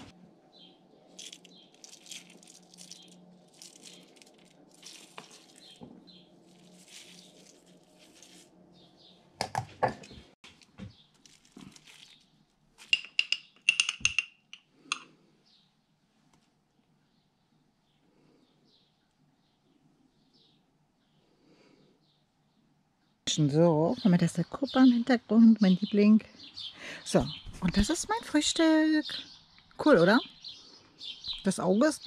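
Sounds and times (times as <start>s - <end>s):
seeds rustling into bowl: 1.1s - 8.9s, 10.4s - 13.1s
spoon clattering on glass jar: 12.8s - 15.1s.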